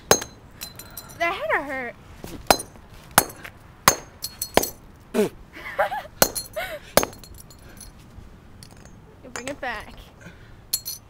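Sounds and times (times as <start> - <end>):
hammer blows on asphalt: 2.5 - 4.8, 6.2 - 7.6.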